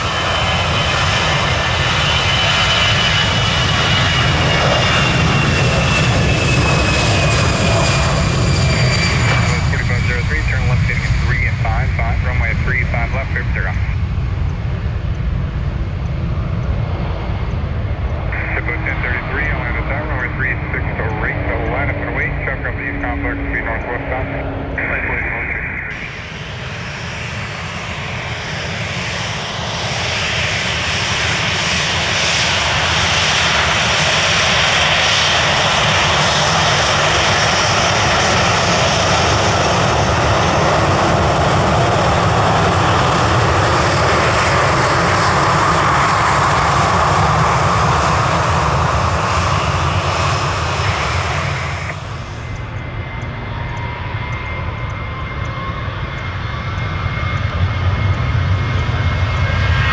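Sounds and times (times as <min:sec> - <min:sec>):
jet airliner engines: 0:00.0 - 0:59.9
rising whine: 0:10.8 - 0:31.0, 0:48.9 - 0:59.8.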